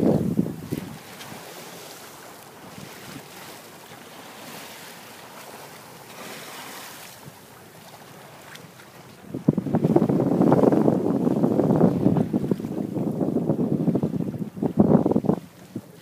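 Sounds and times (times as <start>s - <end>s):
wind on microphone: 0.0s - 3.5s, 9.1s - 16.0s
water rushing past hull: 0.0s - 16.0s.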